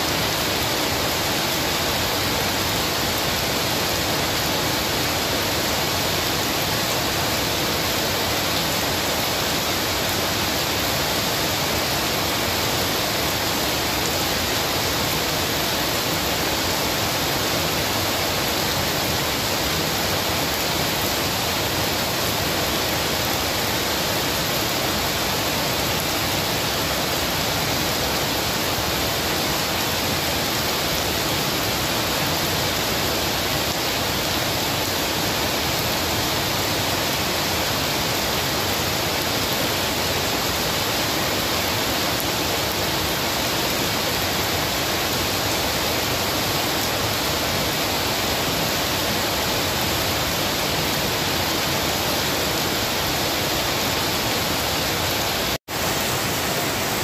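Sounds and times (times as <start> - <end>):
heavy rain on pavement and leaves: 0.0 - 57.0.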